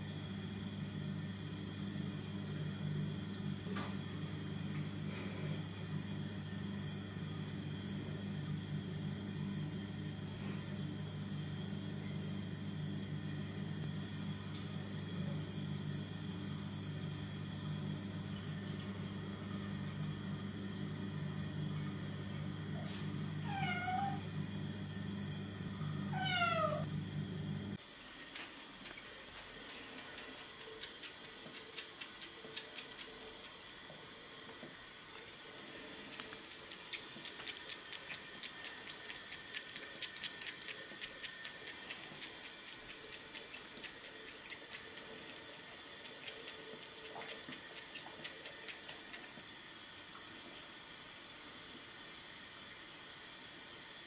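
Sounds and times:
steady low hum: 0.0s - 51.8s
kitten meowing: 23.5s - 24.2s, 26.1s - 26.8s.

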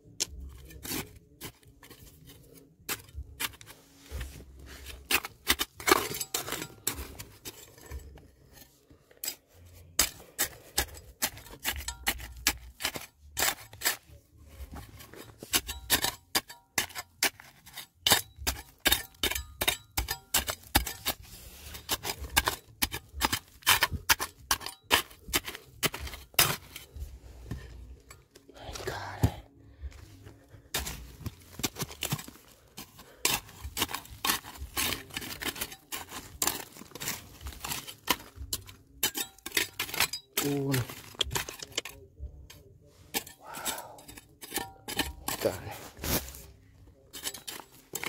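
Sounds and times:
metal tool striking stone: 10.0s - 14.0s, 15.4s - 21.2s, 21.8s - 27.0s, 30.7s - 45.6s, 47.1s - 48.0s.

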